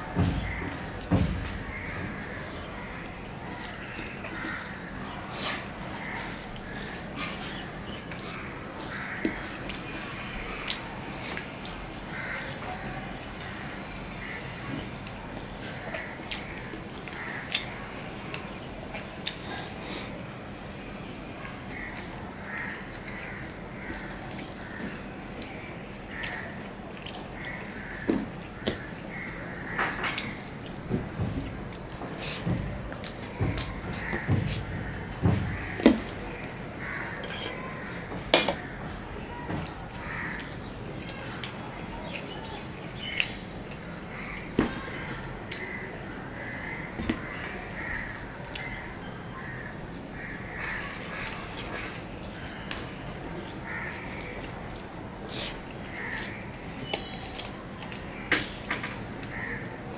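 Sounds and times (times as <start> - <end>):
fingers mixing rice on steel plate: 0.4 - 13.6, 27.0 - 37.6, 50.2 - 58.1
person chewing with lip-smacking: 19.2 - 20.4, 27.0 - 28.5, 50.9 - 58.6.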